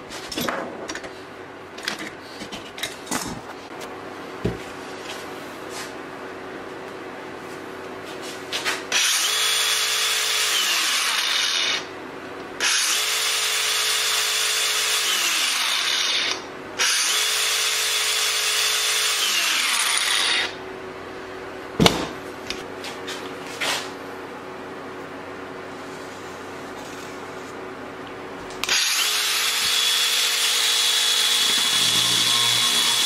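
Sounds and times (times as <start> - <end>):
angle grinder whining: 8.9 - 11.9, 12.6 - 20.6, 28.6 - 33.0.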